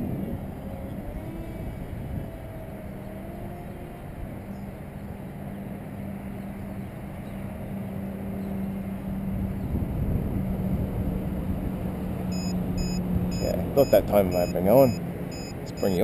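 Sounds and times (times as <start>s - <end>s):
wind buffeting microphone: 0.0s - 5.2s, 9.0s - 14.9s
steady low hum: 0.0s - 16.0s.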